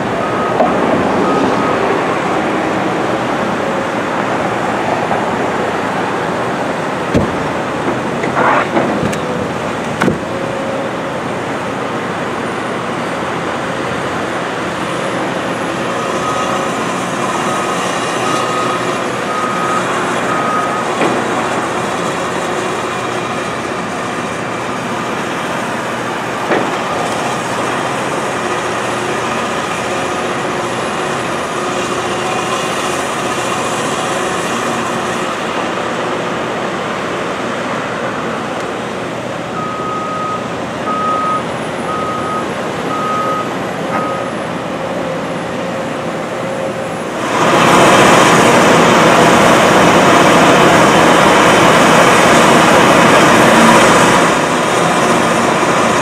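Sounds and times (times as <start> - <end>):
excavator engine and hydraulics: 0.0 - 56.0
backup alarm beeping: 39.6 - 44.4.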